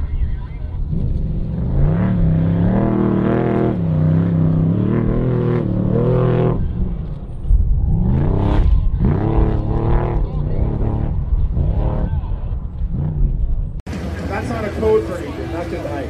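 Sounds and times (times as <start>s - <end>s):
truck engine revving hard: 0.9s - 6.8s, 8.0s - 12.2s.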